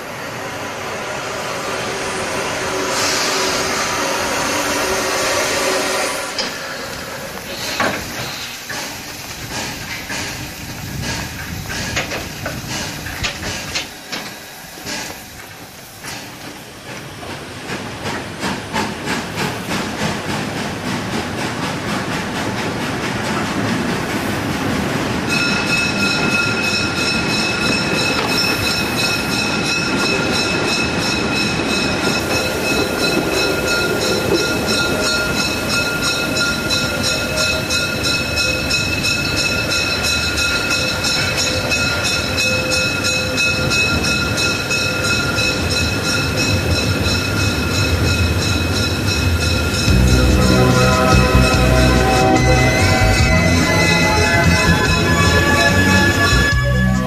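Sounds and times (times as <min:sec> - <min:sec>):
steam train running: 0:00.0 - 0:57.0
steady high whine: 0:49.7 - 0:57.0.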